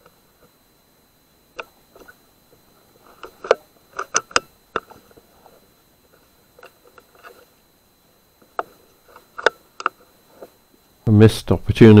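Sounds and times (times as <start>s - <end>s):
sharp clicks and light knocks: 3.0s - 7.5s, 8.4s - 10.6s.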